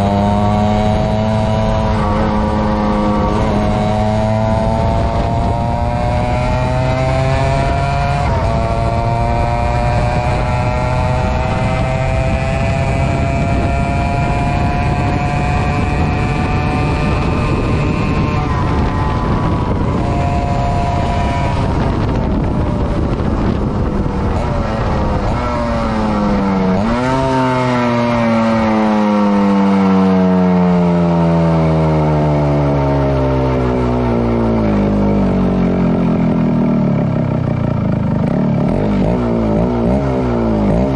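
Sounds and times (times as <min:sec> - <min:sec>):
motorcycle engine revving: 0:00.0 - 0:40.9.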